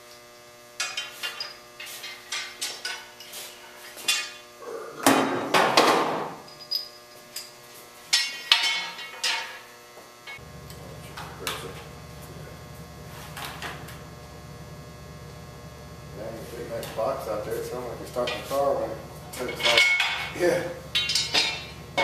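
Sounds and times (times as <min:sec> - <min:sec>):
low electrical hum: 0:00.0 - 0:22.0
steel parts clanking: 0:08.1 - 0:09.6, 0:17.6 - 0:22.0.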